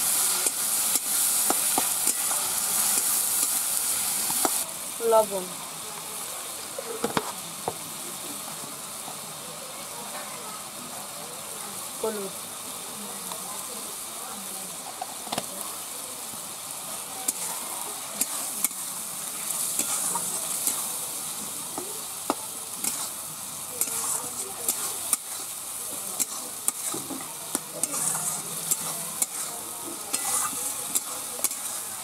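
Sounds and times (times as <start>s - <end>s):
paste sizzling in oil: 0.0s - 32.0s
metal spatula scraping pan: 23.8s - 25.5s, 26.2s - 31.7s.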